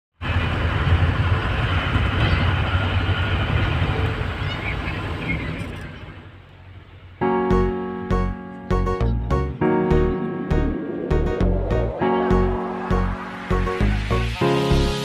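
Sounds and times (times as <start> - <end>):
engine and road rumble in cabin: 0.2 - 7.2.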